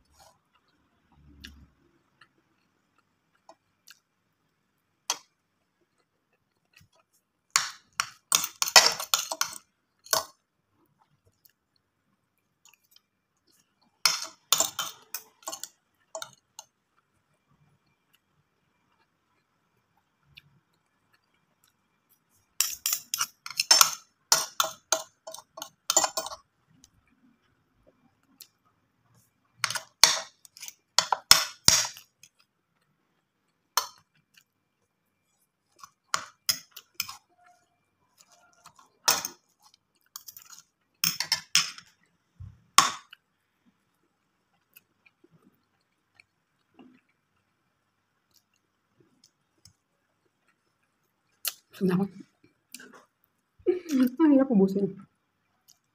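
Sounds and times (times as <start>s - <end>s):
cutlery clinking and scraping: 7.6s - 10.4s, 14.0s - 16.4s, 22.6s - 26.4s, 29.6s - 32.1s, 35.8s - 37.3s, 38.2s - 41.9s.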